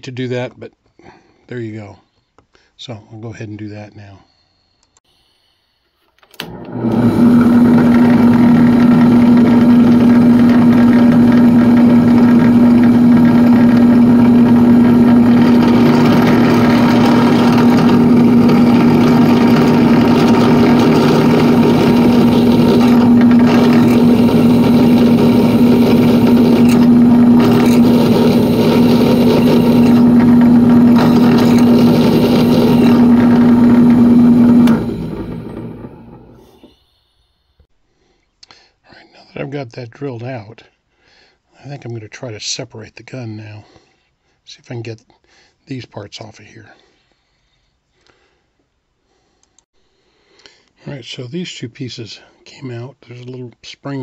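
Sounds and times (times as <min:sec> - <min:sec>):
electric drill running: 0:06.4 - 0:36.6.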